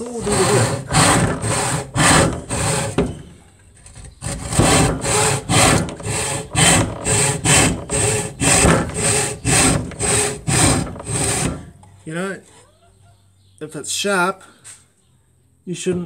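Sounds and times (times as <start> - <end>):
saw rasping through wood: 0.0 - 11.8.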